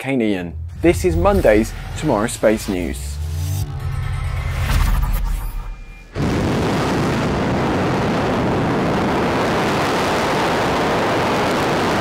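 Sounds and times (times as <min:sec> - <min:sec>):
rocket engines roaring: 0:00.4 - 0:12.0.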